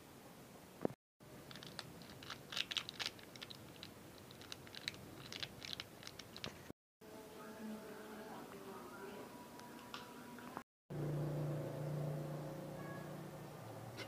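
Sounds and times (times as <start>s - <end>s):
plastic sachet crackling: 1.4s - 6.7s.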